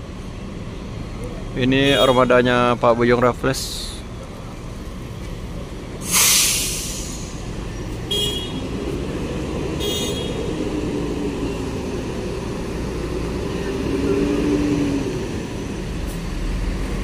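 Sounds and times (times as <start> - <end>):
bus diesel engine: 0.0 - 17.0
air brake hiss: 6.0 - 7.5
horn toots: 8.1 - 8.8, 9.8 - 10.5.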